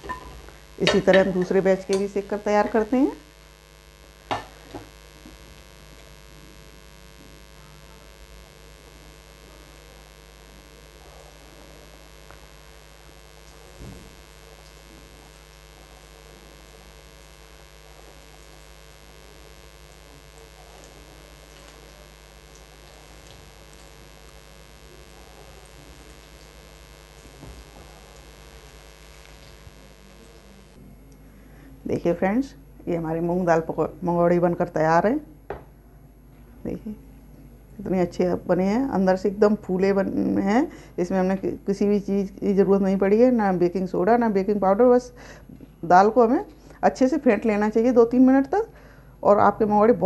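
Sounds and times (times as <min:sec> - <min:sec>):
fritters deep-frying in oil: 0:00.0 - 0:30.8
electrical hum: 0:00.0 - 0:50.0.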